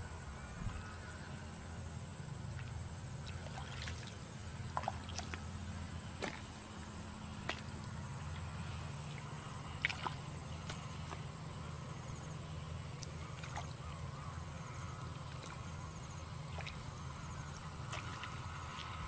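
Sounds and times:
steady low rumble: 0:00.0 - 0:19.0
hands splashing in muddy water: 0:03.3 - 0:05.4, 0:06.2 - 0:06.5, 0:09.1 - 0:11.3, 0:17.5 - 0:19.0.

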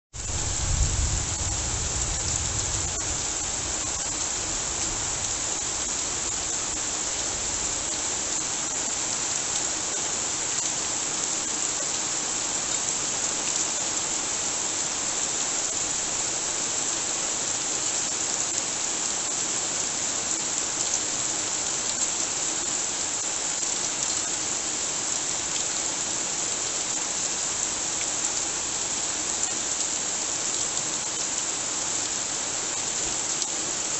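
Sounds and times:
heavy rain on lawn and leaves: 0:00.1 - 0:33.9
low rumble: 0:00.2 - 0:03.0.

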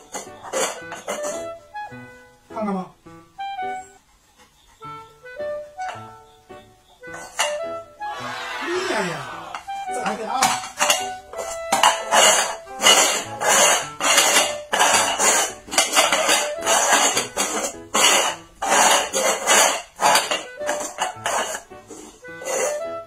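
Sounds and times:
bowls scraping on concrete: 0:00.0 - 0:01.5, 0:07.0 - 0:23.0
background music: 0:00.0 - 0:23.0.

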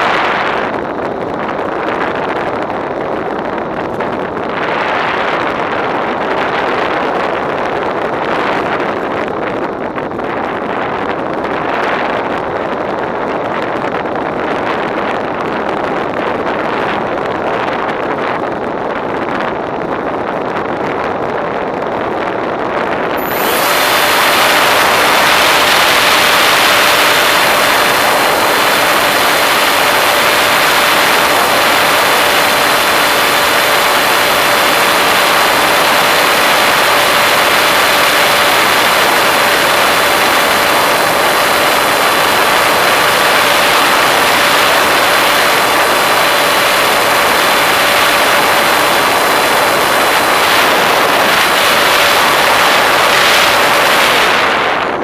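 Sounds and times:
wind rushing over model airplane: 0:00.0 - 0:55.0
electric motor whine: 0:23.2 - 0:54.4.

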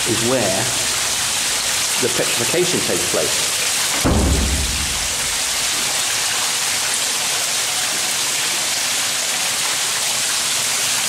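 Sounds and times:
water running and dripping: 0:00.0 - 0:11.0.

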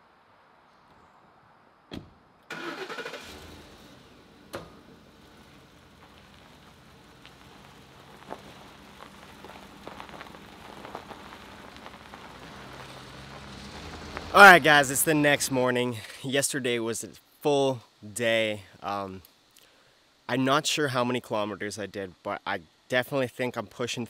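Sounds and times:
thump: 0:01.9 - 0:02.2
vehicle door shutting: 0:01.9 - 0:05.5
truck engine idling: 0:02.5 - 0:16.1
tyres crackling on gravel: 0:02.5 - 0:16.8.

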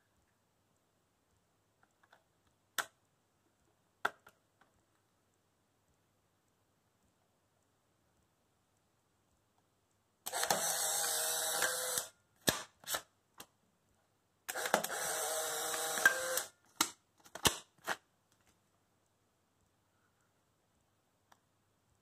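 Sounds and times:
camera ejection motor running: 0:10.3 - 0:12.1, 0:14.5 - 0:16.5.

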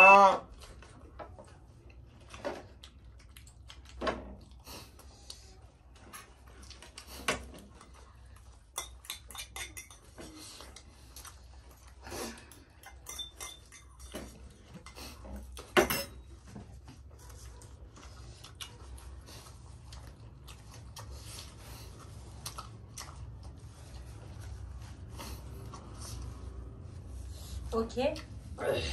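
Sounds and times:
spoons clinking on bowls and plates: 0:08.7 - 0:10.4, 0:12.7 - 0:14.9, 0:15.7 - 0:16.3.

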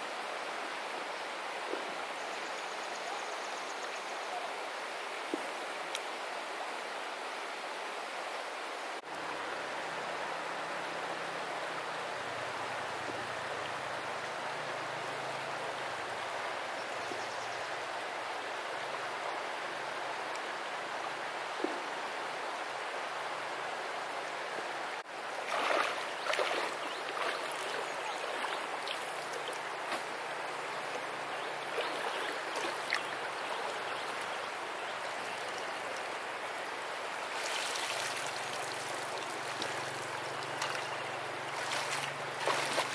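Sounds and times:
river water rushing: 0:03.4 - 0:42.9
splashing in water: 0:25.4 - 0:30.2, 0:31.6 - 0:34.1, 0:37.3 - 0:42.9.

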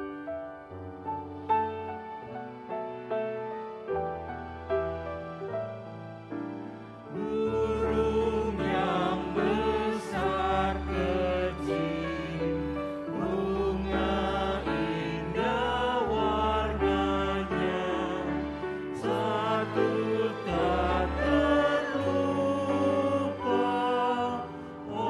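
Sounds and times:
grand piano playing: 0:00.0 - 0:25.0
group singing a hymn: 0:07.1 - 0:25.0.

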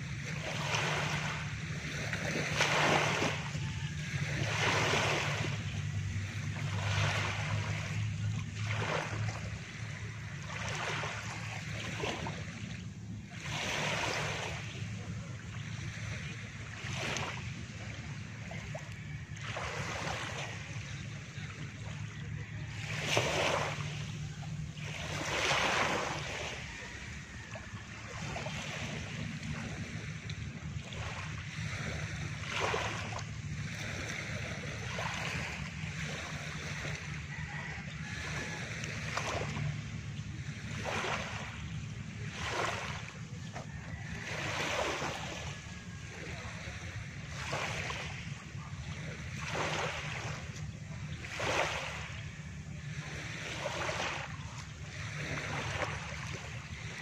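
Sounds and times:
low steady hum: 0:00.0 - 0:57.0
waves lapping on pebble shore: 0:00.0 - 0:57.0.

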